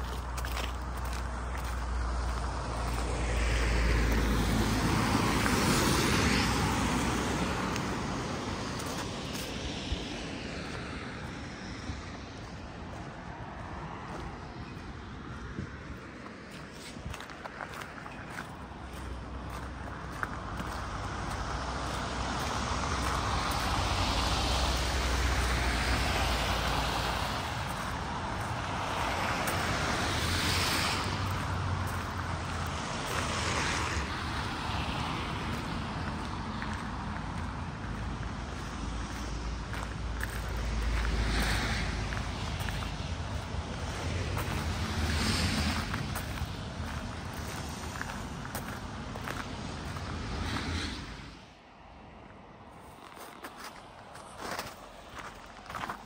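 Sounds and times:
tyre noise of passing vehicles: 0.0 - 56.0
car driving past: 38.8 - 51.5.

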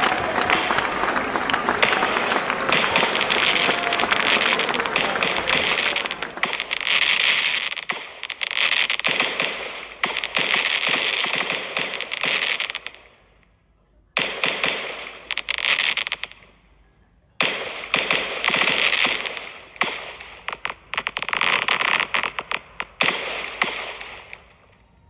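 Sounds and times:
fireworks crackling reports: 0.0 - 13.0.

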